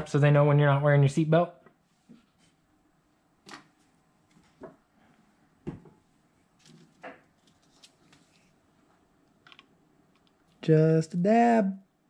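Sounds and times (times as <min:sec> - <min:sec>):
objects knocking on a desk: 0:05.6 - 0:06.0.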